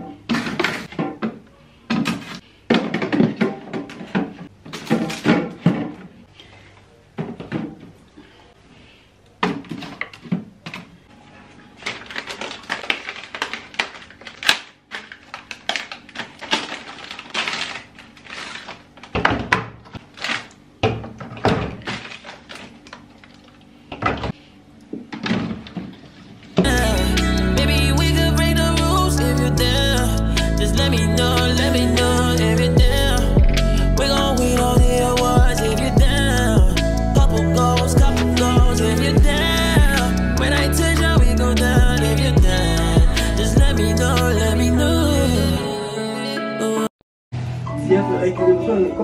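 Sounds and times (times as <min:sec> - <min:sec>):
plastic bottles knocking on shelves: 0:00.0 - 0:06.1
plastic bag rustling: 0:11.1 - 0:23.9
background music: 0:26.6 - 0:49.0.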